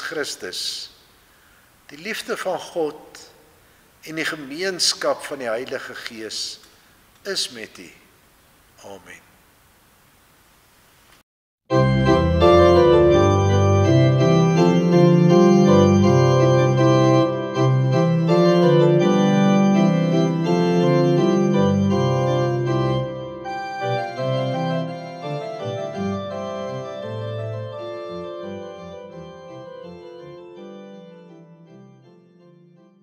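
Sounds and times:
organ playing held chords: 11.7 - 33.0.

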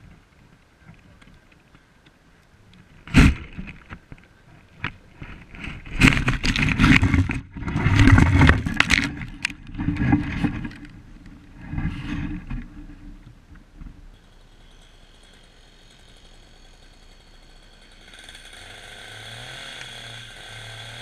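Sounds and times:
branches scraping against camera: 2.7 - 14.8.

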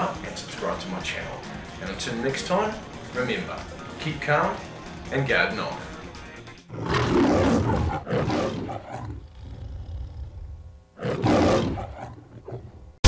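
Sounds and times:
lion roaring: 6.7 - 12.8.

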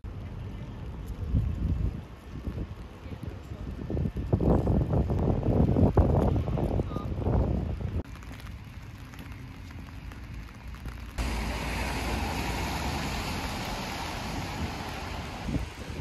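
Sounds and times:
rain hissing on wet paving: 0.1 - 16.0.

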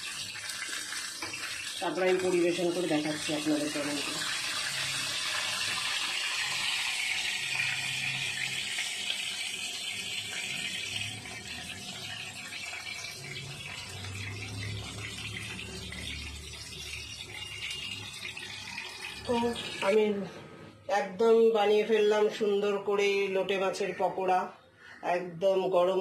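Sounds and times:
hot oil sizzling: 0.0 - 20.1.

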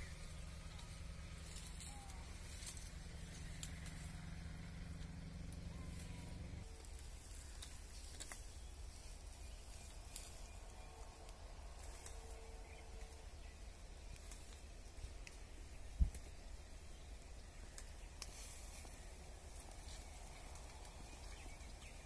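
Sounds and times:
low steady hum: 0.0 - 22.0
twigs snapping: 6.9 - 8.6, 17.7 - 19.0
bird chirp: 7.3 - 22.0.

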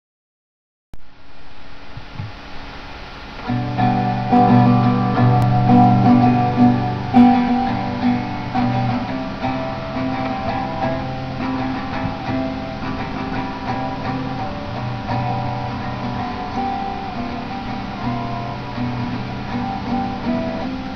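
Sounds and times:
acoustic guitar music: 3.4 - 20.9.

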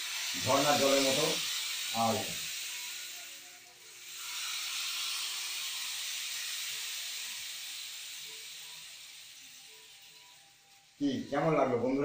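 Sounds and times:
rainstick trickling hiss: 0.0 - 12.0.

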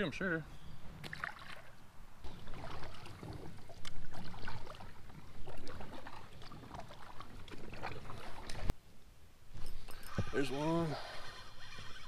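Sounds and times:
kayak paddle strokes in water: 1.0 - 8.7.

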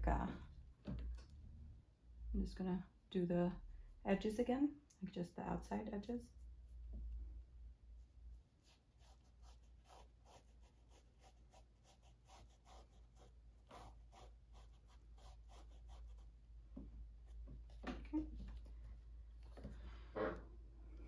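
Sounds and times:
paintbrush dabbing on canvas: 7.9 - 18.0.

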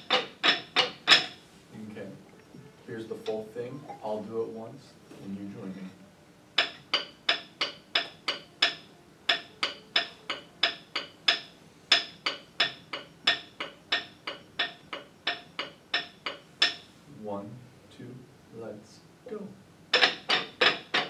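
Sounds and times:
rhythm sticks tapping: 6.5 - 16.9, 19.9 - 21.0.

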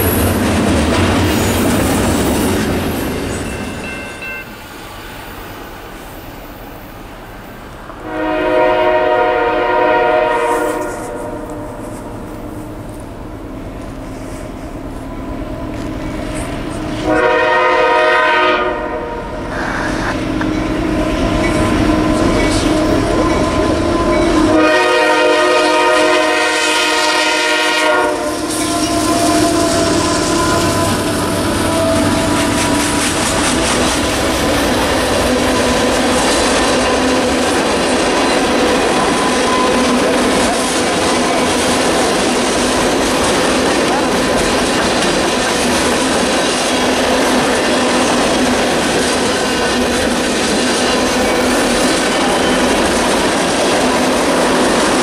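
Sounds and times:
train wheels rumbling on rails: 0.0 - 55.0
train horn chord: 8.0 - 12.6, 17.0 - 19.3, 21.9 - 33.4.

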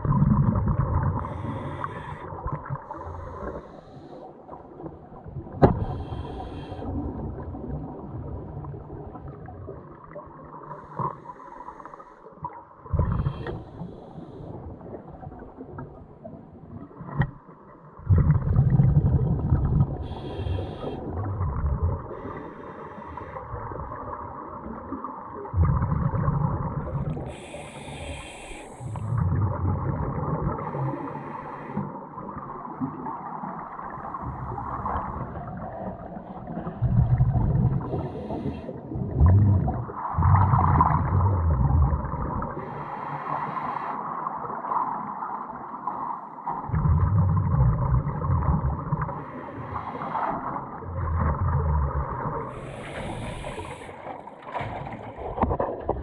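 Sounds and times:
exhaled bubbles gushing: 0.0 - 3.7, 4.6 - 10.9, 12.8 - 13.9, 18.0 - 22.3, 23.5 - 31.1, 32.2 - 42.6, 46.6 - 49.4, 50.4 - 56.0
regulator inhalation hiss: 20.1 - 21.0, 27.3 - 29.1, 52.6 - 54.1.

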